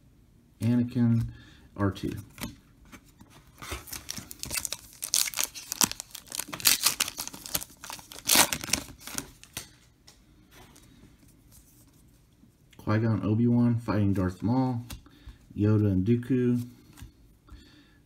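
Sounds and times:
foil wrapper crinkling: 0:03.7 - 0:09.7.

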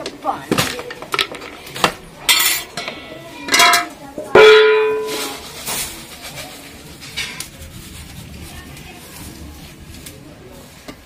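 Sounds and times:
metal utensils clinking: 0:00.0 - 0:07.6
steel plate clanging: 0:02.3 - 0:06.0.

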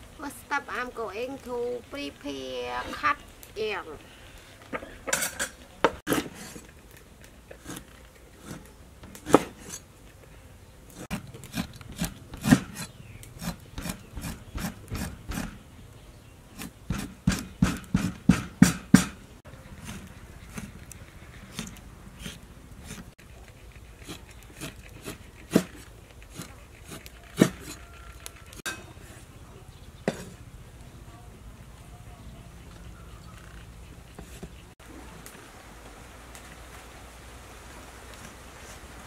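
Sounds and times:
cleaver chopping on wooden board: 0:16.6 - 0:19.2.

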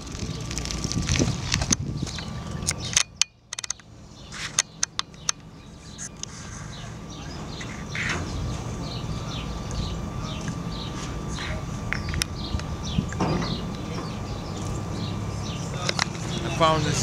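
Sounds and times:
low steady rumble: 0:00.0 - 0:17.0
small birds chirping: 0:00.2 - 0:17.0
sharp clicks: 0:01.5 - 0:06.3.

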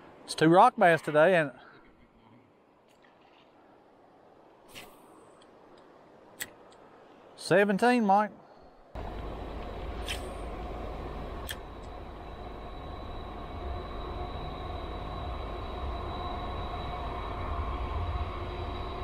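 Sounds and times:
faint steady tones: 0:00.0 - 0:19.0
low machine rumble: 0:09.0 - 0:19.0
sharp click: 0:11.4 - 0:11.6.

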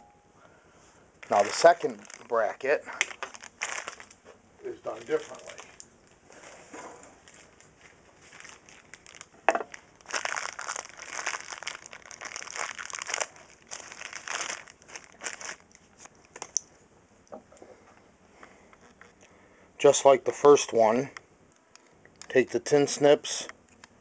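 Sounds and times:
plastic crinkling: 0:01.2 - 0:16.6.

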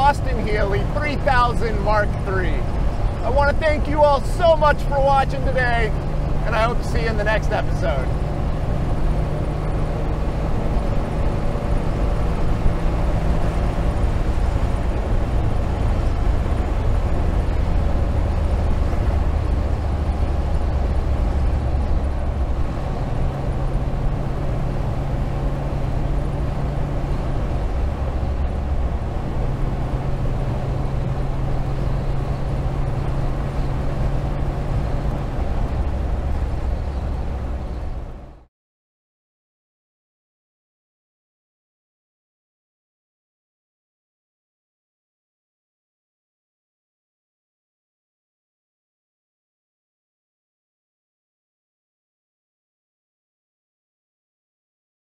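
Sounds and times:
car engine running: 0:00.0 - 0:38.4
wind and road noise: 0:00.0 - 0:38.5.

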